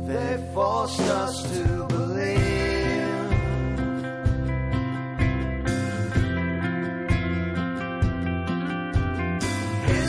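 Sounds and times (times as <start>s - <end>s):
song with singing voice: 0.0s - 4.6s, 9.4s - 10.0s.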